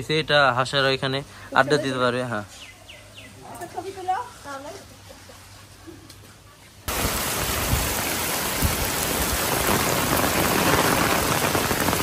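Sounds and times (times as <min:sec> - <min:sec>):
heavy rain on pavement: 0:06.9 - 0:12.0.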